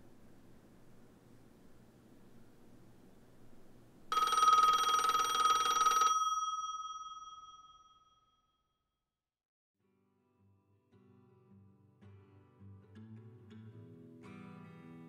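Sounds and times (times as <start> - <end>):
bell ringing: 4.1 - 8.4.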